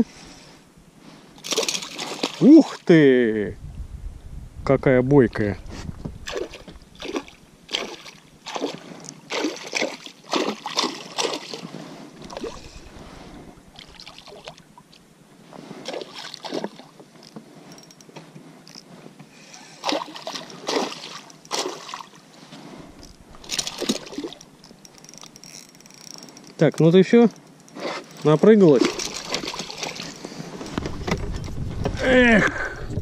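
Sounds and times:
fish thrashing and splashing: 1.4 - 2.5, 6.3 - 13.0, 15.8 - 17.0, 19.7 - 26.6, 27.3 - 31.2.

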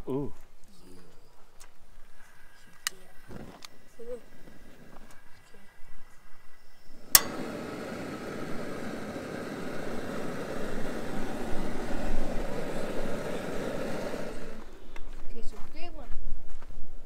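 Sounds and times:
propane burner hissing: 2.0 - 15.5
stove igniter click: 7.0 - 11.8.

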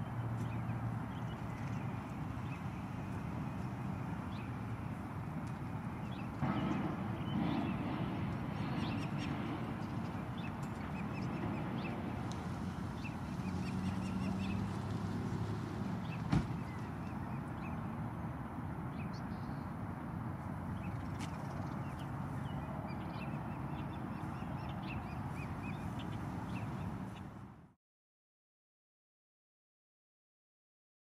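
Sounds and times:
outdoor background noise: 0.0 - 27.8
sharp knock: 6.4 - 7.7.

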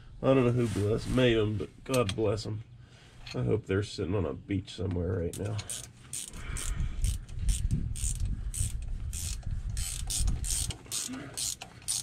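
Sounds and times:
ratchet wrench clicking: 5.3 - 12.0.

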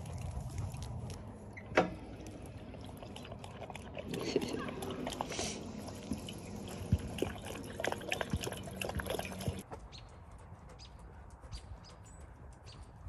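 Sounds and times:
water trickling from fountain: 0.0 - 9.6
dog drinking: 2.0 - 9.6.

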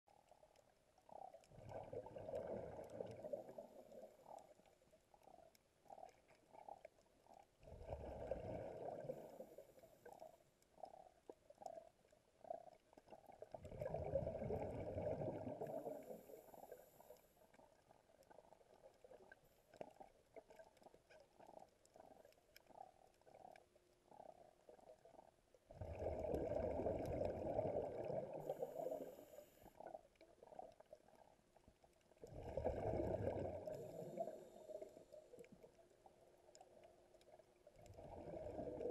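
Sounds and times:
bubbling exhaled air underwater: 0.3 - 38.9
bubble pops and gurgles: 1.0 - 9.3, 10.1 - 16.1, 17.8 - 28.6, 32.2 - 34.2, 36.5 - 38.9.

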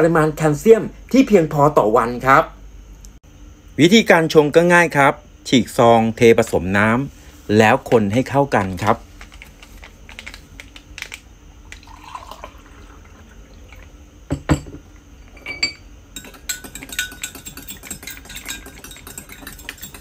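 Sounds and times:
water pouring into a mug: 11.7 - 14.0
metal spoon clinking against glass: 15.3 - 20.0.

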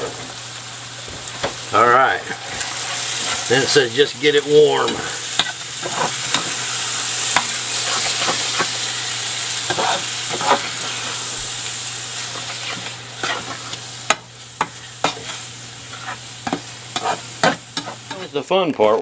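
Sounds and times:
meat sauce sizzling in skillet: 0.0 - 18.7
utensil scraping a pan: 4.7 - 6.7, 7.3 - 8.8, 9.7 - 11.1, 12.2 - 18.3.

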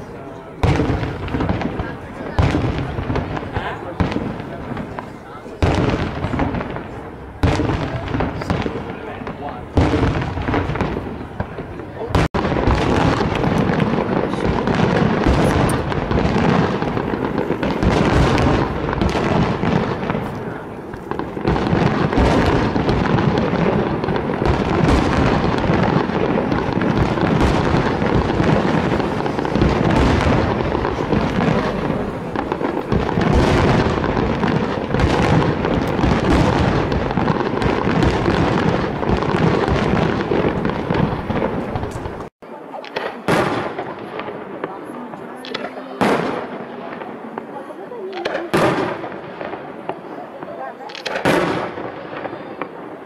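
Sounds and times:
fireworks bursts and crackle: 0.0 - 53.0.

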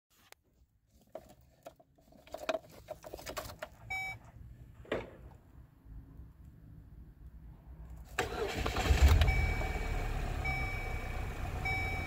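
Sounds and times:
electronic dash chime: 9.2 - 12.0.

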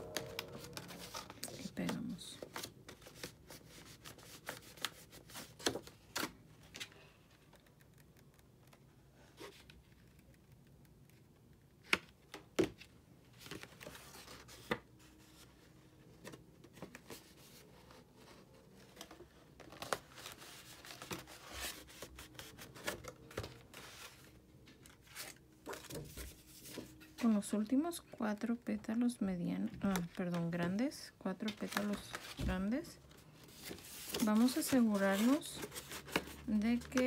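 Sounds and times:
paper rustling and crinkling: 0.0 - 7.1, 13.3 - 27.4, 31.4 - 37.0.

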